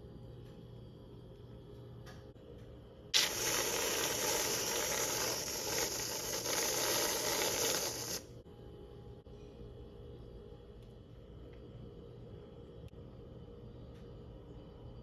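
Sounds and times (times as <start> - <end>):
aerosol whipped cream hissing: 3.2 - 8.3.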